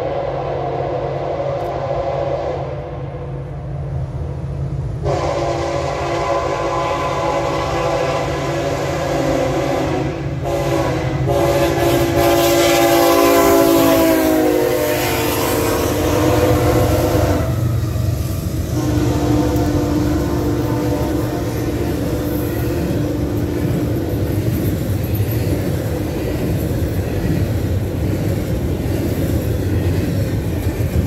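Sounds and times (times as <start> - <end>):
locomotive engines rumbling: 0.0 - 31.0
train cars rolling over rails: 1.4 - 31.0
locomotive air horn blasts: 5.0 - 17.8, 18.7 - 23.8.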